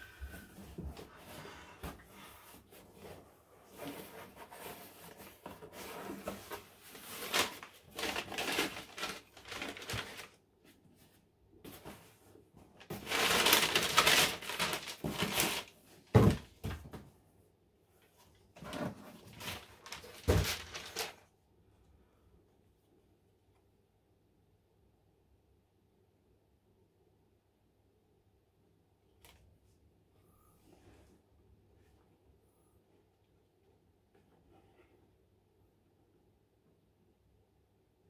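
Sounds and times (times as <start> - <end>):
wrapping paper rustling: 6.0 - 10.4, 12.8 - 16.4, 18.8 - 21.3.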